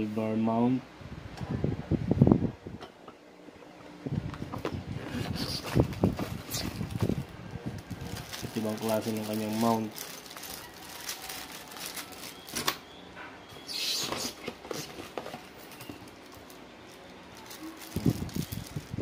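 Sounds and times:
plastic bags crinkling: 5.5 - 12.8, 14.9 - 19.0.

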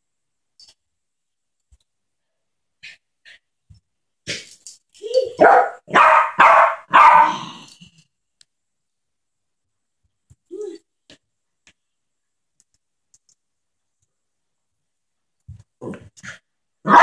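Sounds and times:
small dog barking: 5.4 - 7.5.

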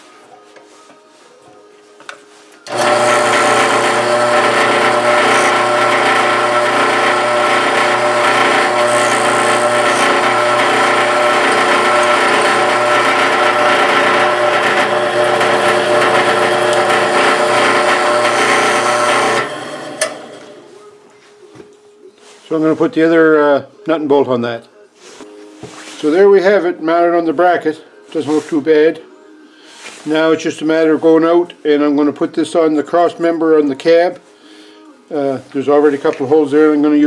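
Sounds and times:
drill press motor running: 2.6 - 20.7.

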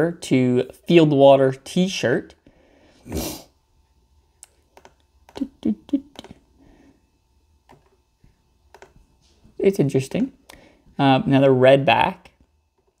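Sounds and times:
loud breath or sniff: 2.5 - 3.5
faint computer mouse clicks: 4.4 - 5.4, 8.7 - 9.0.

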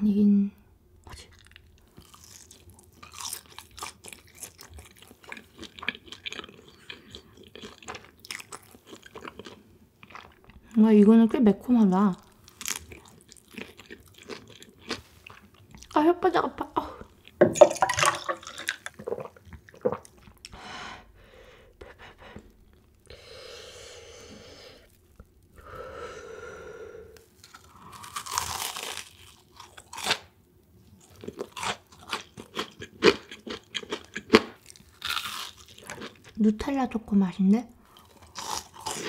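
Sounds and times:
crunching crisp food: 1.2 - 10.5, 12.4 - 16.0, 27.2 - 36.4, 37.9 - 39.0.

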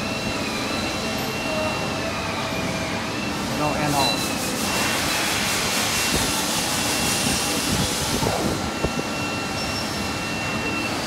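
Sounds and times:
machine rushing hiss: 3.4 - 8.8
faint thin high whine: 8.6 - 11.0.

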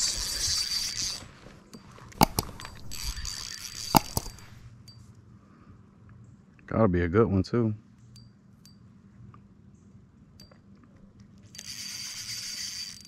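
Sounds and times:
fishing reel drag buzzing: 0.0 - 1.4, 2.2 - 4.7, 11.5 - 13.0.

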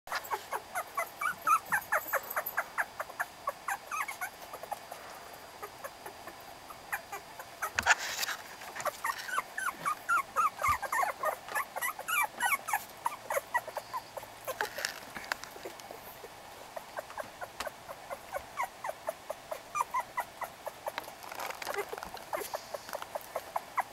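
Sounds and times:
puppies squeaking and whimpering: 0.1 - 4.9, 5.6 - 23.9
brief rustles: 7.8 - 9.4.

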